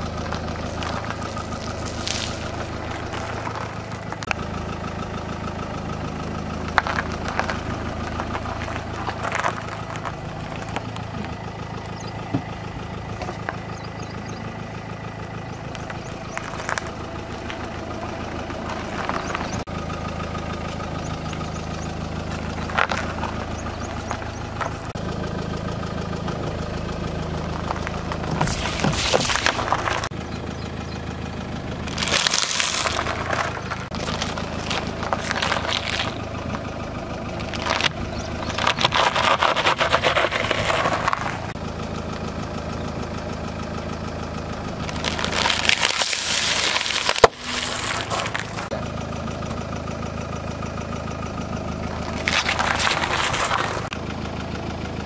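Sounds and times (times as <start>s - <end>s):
tyre crushing food on asphalt: 0.0s - 4.5s, 6.4s - 13.8s, 15.6s - 25.0s, 27.2s - 30.2s, 31.8s - 41.6s, 44.8s - 48.8s, 51.9s - 54.0s
car engine idling: 0.0s - 55.0s
snack bag crunching: 31.9s - 36.2s, 37.4s - 41.4s, 44.8s - 48.7s, 52.0s - 53.9s.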